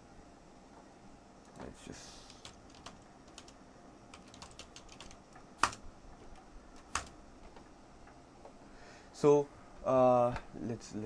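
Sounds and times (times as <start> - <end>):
typing on keyboard: 2.3 - 5.8, 6.8 - 7.1.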